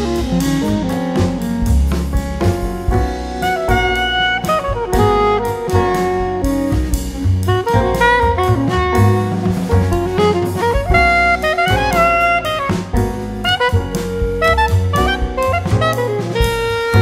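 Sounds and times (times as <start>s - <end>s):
instrumental music with drums: 0.0s - 17.0s.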